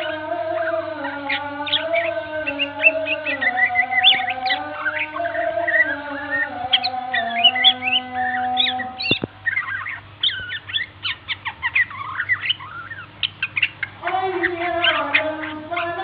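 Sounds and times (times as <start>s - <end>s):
bird song whistles and chirps: 0.0s - 16.0s
steady held tones: 0.0s - 16.0s
sharp clicks: 9.0s - 9.4s.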